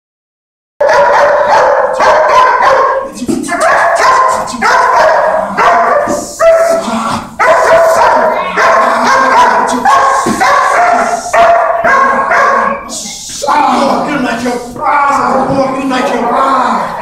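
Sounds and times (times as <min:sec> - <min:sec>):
dog barking rapidly: 0:00.8 - 0:06.8, 0:07.4 - 0:12.9.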